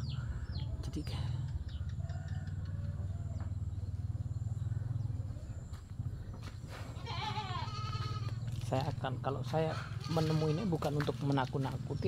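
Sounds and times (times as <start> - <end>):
low rumble on microphone: 0.0 - 10.0
goat bleating: 6.9 - 8.4, 9.7 - 11.0.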